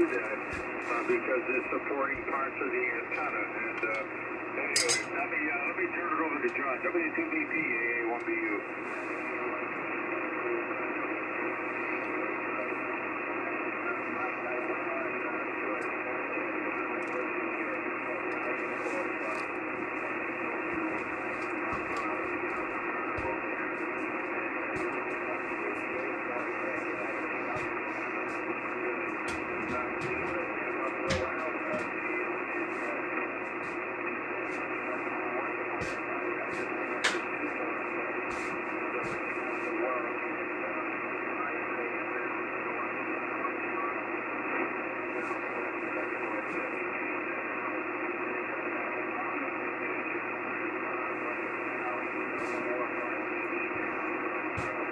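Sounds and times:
radio static hiss: 0:00.0 - 0:54.9.

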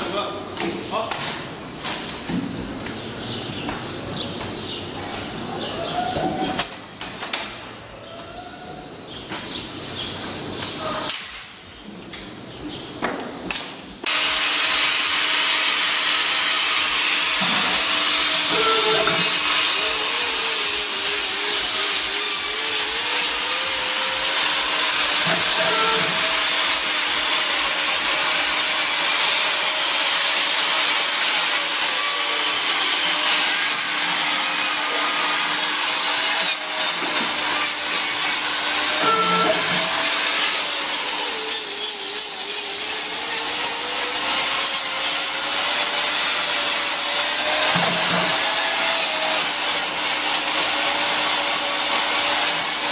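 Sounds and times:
angle grinder grinding hoof: 0:14.1 - 0:52.9.

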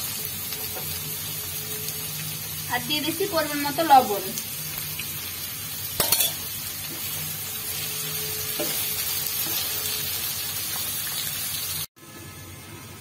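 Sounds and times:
vegetables sizzling in hot oil: 0:00.0 - 0:11.9.

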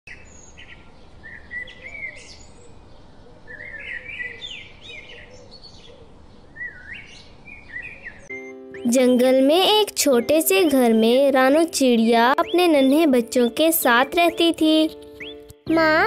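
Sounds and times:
birds chirping: 0:00.1 - 0:16.0.

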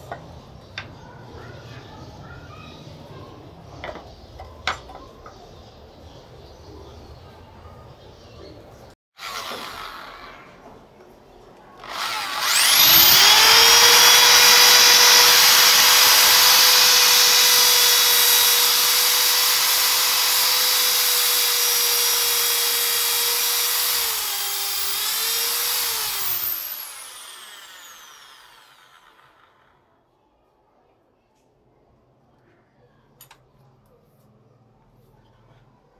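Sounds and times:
electric drill whining: 0:09.2 - 0:10.4, 0:11.8 - 0:29.7.

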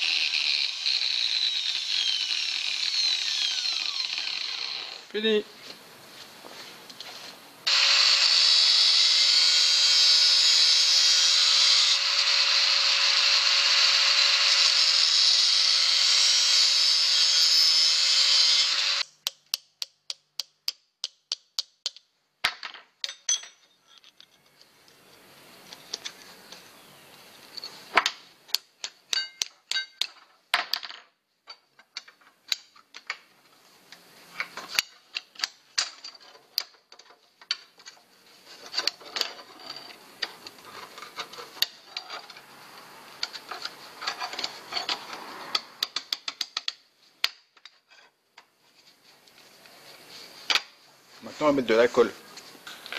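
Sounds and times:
hammer tapping steel tube: 0:19.1 - 0:22.0.

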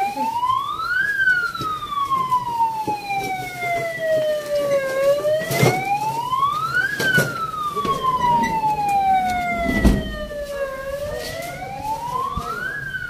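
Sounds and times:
ambulance siren wailing: 0:00.0 - 0:13.0.

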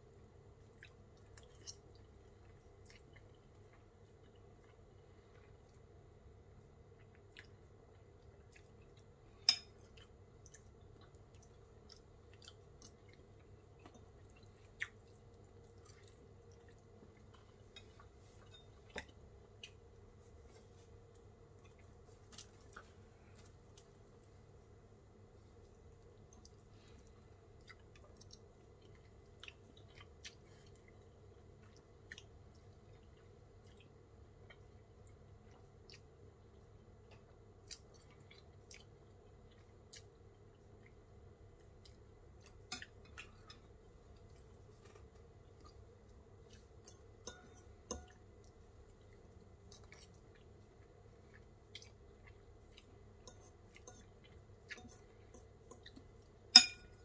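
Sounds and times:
faint chewing: 0:00.0 - 0:57.0
metal fork clicking on ceramic bowl: 0:09.5 - 0:09.7, 0:46.9 - 0:48.2, 0:53.3 - 0:54.0, 0:56.5 - 0:57.0.

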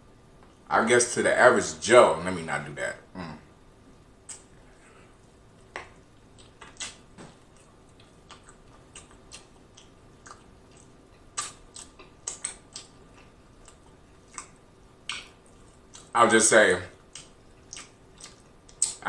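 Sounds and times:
mouth clicks and lip smacks: 0:04.2 - 0:04.5, 0:05.7 - 0:16.1, 0:17.1 - 0:19.0.

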